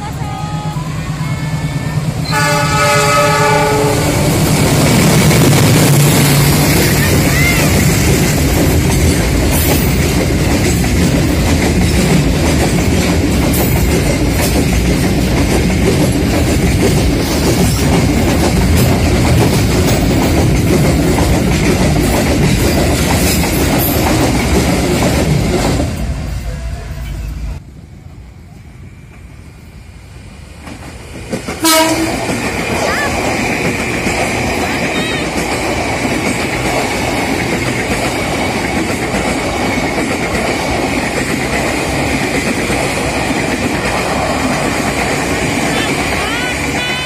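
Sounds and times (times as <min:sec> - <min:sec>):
train wheel clatter: 0:00.0 - 0:27.2, 0:30.5 - 0:47.0
diesel locomotive engine: 0:00.0 - 0:47.0
train horn blast: 0:00.7 - 0:04.5, 0:31.6 - 0:32.3.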